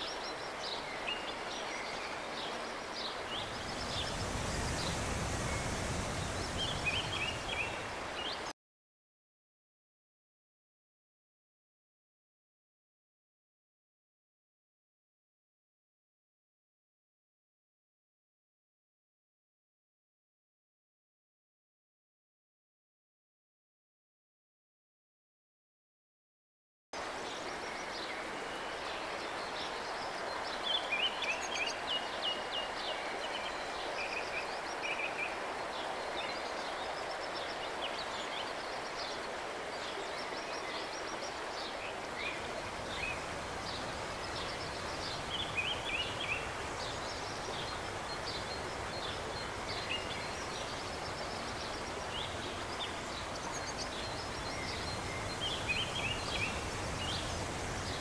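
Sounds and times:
river water flowing: 0.0 - 8.5, 27.0 - 58.0
songbirds chirping and trilling: 0.0 - 8.5, 27.0 - 58.0.

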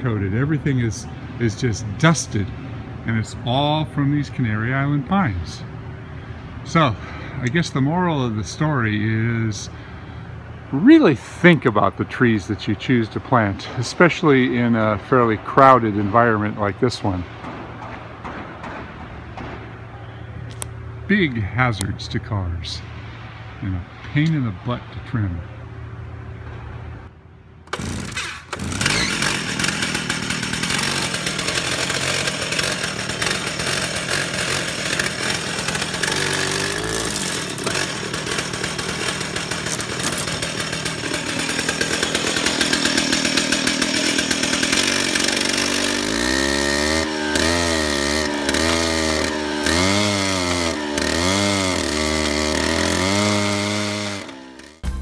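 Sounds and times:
stump grinder engine grinding: 27.7 - 54.8.

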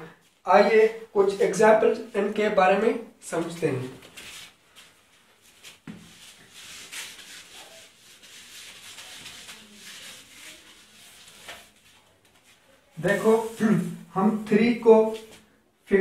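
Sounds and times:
duster wiping a whiteboard: 3.4 - 15.5.

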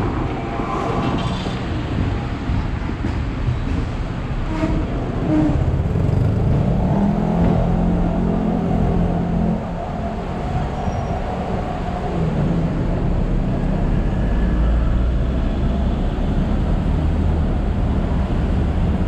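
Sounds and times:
tram rumbling and rattling: 0.0 - 19.0.

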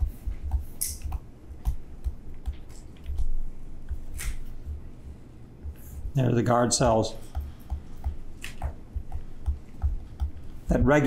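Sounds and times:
stylus tapping on tablet screen: 0.0 - 4.8, 7.1 - 11.0.

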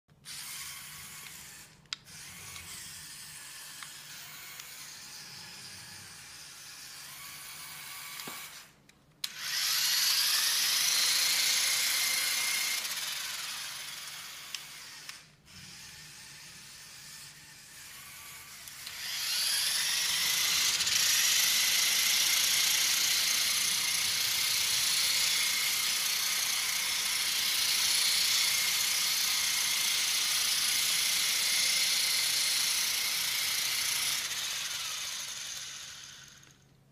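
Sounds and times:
toy motor whine: 0.2 - 36.6.

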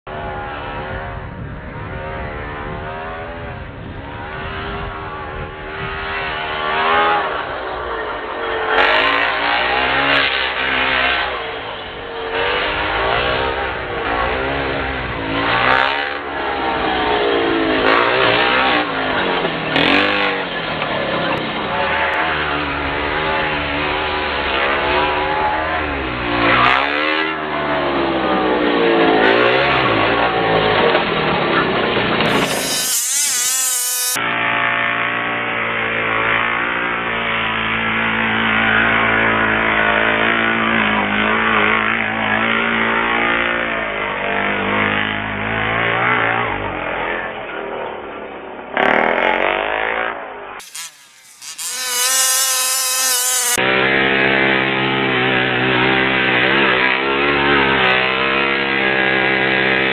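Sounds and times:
rc truck engine revving: 32.2 - 34.2, 50.6 - 53.6.

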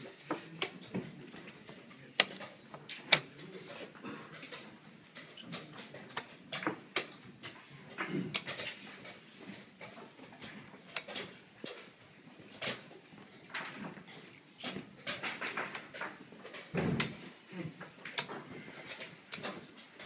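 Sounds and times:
chess clock buttons clicking: 3.1 - 3.3, 18.0 - 19.6.

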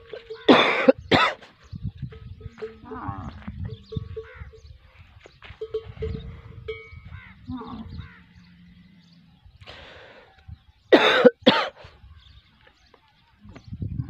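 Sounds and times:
birds chirping: 0.0 - 14.0
camel harsh calls: 2.6 - 4.6, 7.0 - 9.0
ringing bell tones: 5.6 - 7.1.

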